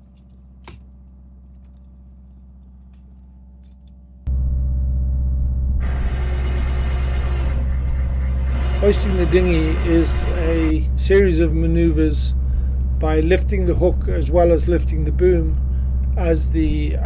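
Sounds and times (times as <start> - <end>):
boat engine humming: 0.0 - 17.0
hissing rush: 5.8 - 10.8.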